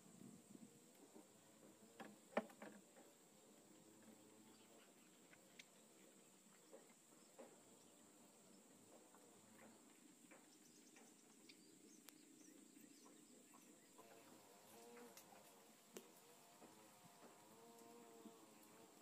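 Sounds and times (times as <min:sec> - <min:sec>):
faint ticks: 0:17.1 - 0:18.9.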